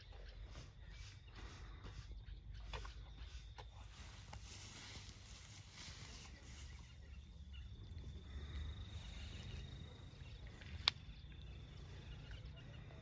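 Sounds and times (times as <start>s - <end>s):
insect trilling: 3.9s - 13.0s.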